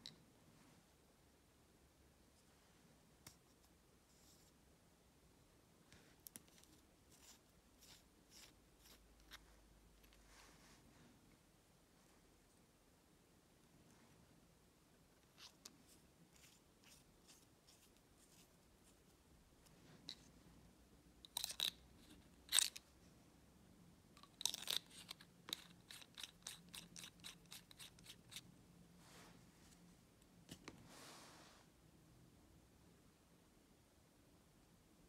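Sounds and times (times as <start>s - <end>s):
pen parts clicking and tapping: 24.2s - 27.9s.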